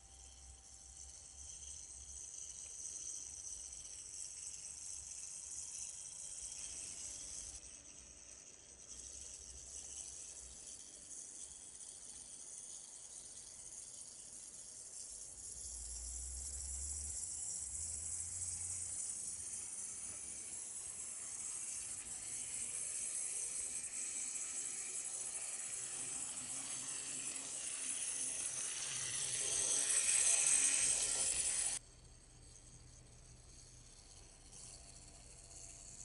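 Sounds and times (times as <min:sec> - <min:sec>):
toy motor whirring: 0:00.0 - 0:36.0
wheels rattling on plastic track: 0:17.8 - 0:31.8.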